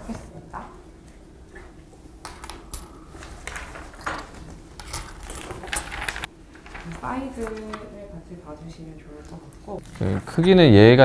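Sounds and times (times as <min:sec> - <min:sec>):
metal pendants clinking: 0:02.4 - 0:06.3.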